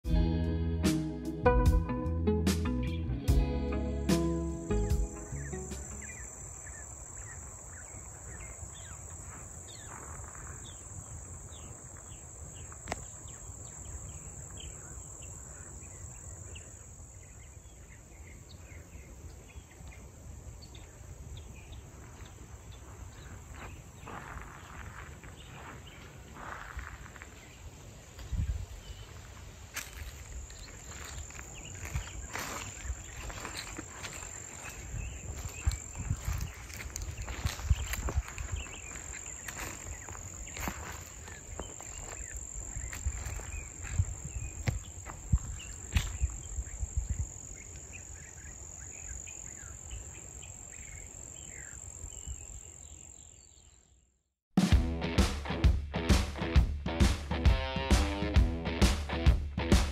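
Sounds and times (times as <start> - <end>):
insects trilling: 4.6 - 19.1, 20.0 - 53.6.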